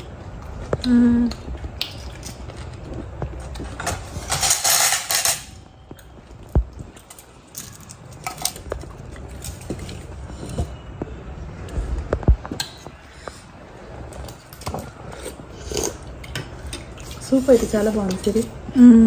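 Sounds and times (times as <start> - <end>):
plate clattering and scraping: 3.8 - 5.6.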